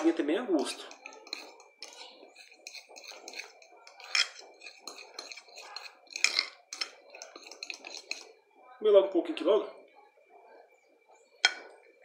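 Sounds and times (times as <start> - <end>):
metal spoon scraping glass bowl: 0.0 - 8.4.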